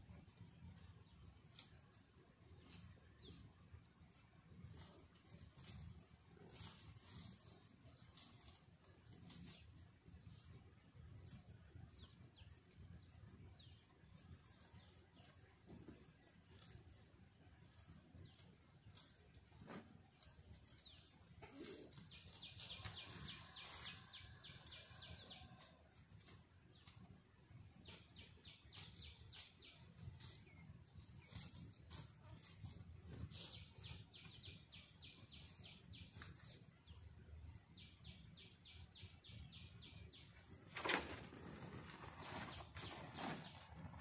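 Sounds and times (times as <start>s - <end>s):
rustling: 40.5s - 44.0s.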